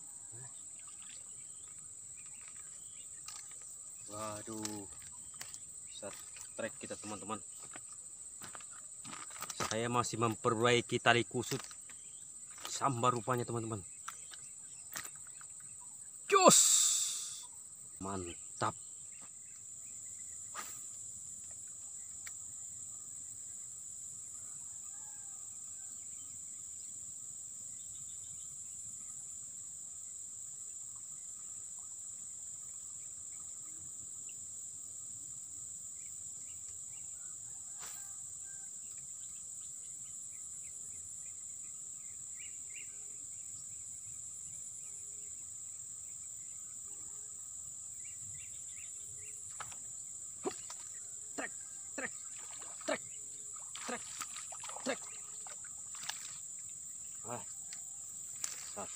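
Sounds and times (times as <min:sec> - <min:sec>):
insects singing: 0:00.0 - 0:24.1, 0:35.9 - 0:58.9.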